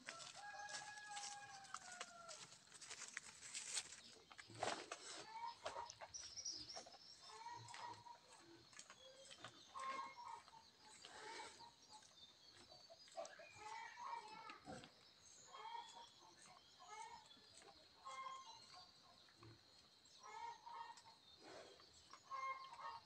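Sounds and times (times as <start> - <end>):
chickens clucking: 4.3 - 14.9, 15.5 - 19.6, 20.2 - 23.0.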